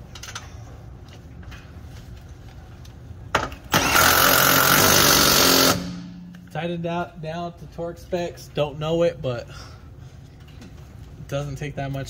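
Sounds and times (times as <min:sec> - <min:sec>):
cordless power tool running: 0:03.7 - 0:06.1.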